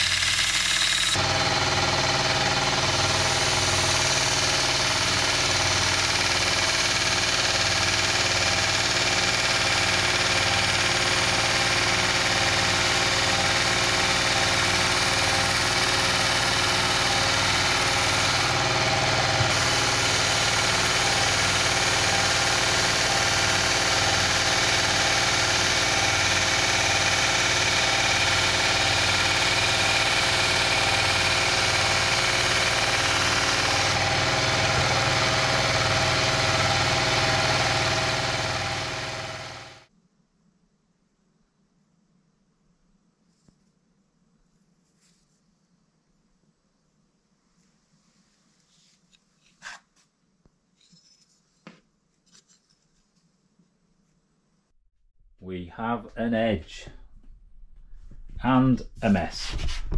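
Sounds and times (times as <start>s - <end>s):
steel blade grinding on belt: 0.0s - 39.6s
belt sander running: 0.0s - 39.9s.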